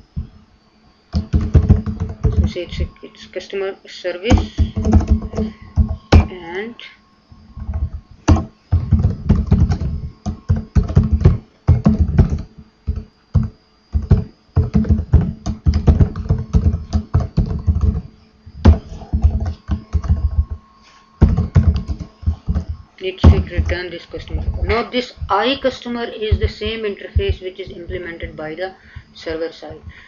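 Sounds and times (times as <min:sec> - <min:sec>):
typing on computer keyboard: 0:01.2 - 0:02.6.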